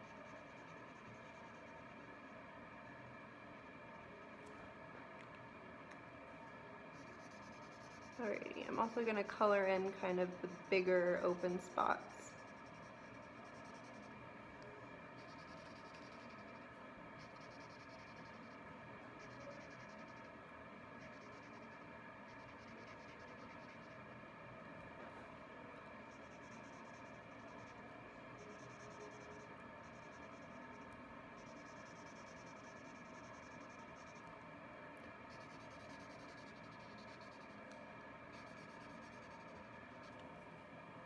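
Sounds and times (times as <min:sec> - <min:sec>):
steady background hum: 0:00.0 - 0:41.0.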